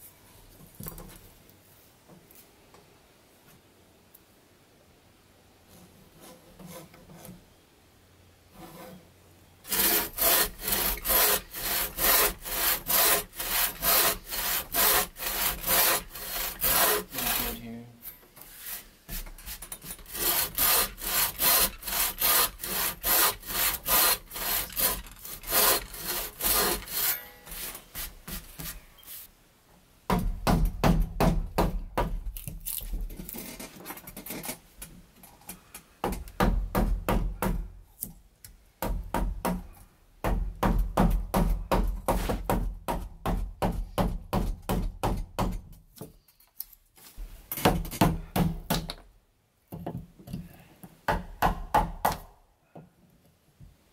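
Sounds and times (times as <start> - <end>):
chisel scraping wood: 5.7 - 7.4, 8.5 - 9.1, 9.7 - 17.6, 18.4 - 28.7
hand saw cutting wood: 5.8 - 7.4, 9.6 - 17.8, 18.4 - 28.4.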